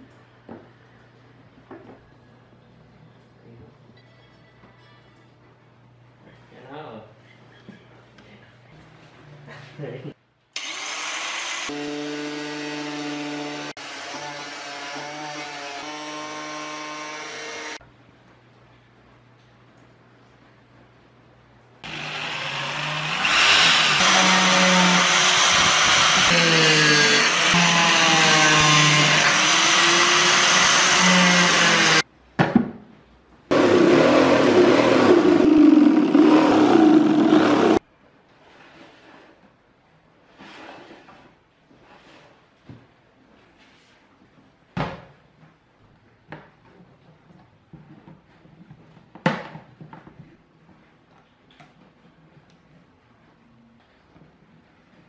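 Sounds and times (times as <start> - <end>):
angle grinder cutting pottery: 10.6 - 17.8, 21.8 - 32.0, 33.5 - 37.8
corded drill running: 21.8 - 32.0, 33.5 - 37.8.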